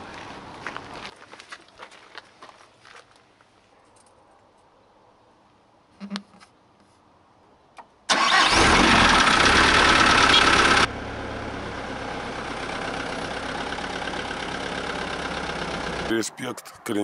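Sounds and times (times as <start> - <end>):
truck engine starting and idling: 8.1 - 16.6.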